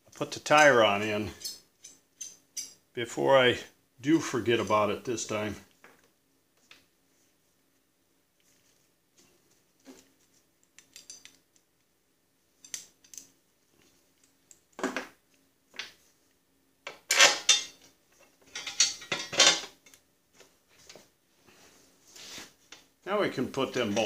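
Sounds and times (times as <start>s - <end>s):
steel parts clinking and clanking: 1.3s - 2.8s, 10.8s - 11.4s, 16.9s - 17.9s, 18.5s - 20.0s.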